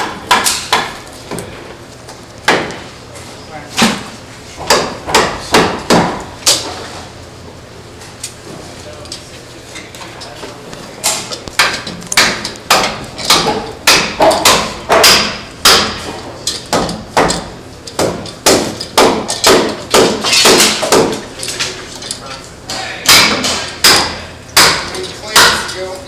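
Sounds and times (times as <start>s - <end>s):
hammers striking wood: 0.0s - 1.5s, 2.4s - 2.9s, 3.8s - 6.7s, 11.1s - 21.3s, 22.7s - 25.8s.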